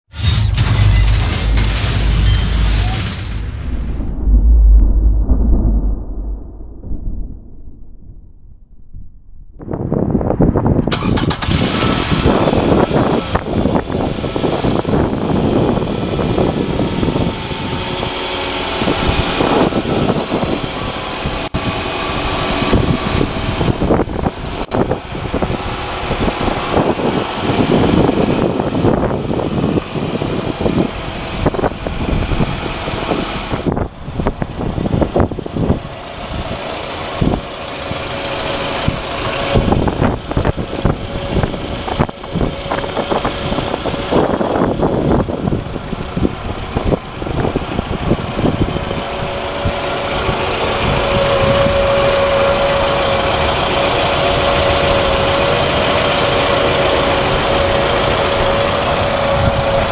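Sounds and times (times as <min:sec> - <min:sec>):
wind buffeting microphone: 0:03.4 - 0:59.9
car engine idling: 0:10.6 - 0:59.9.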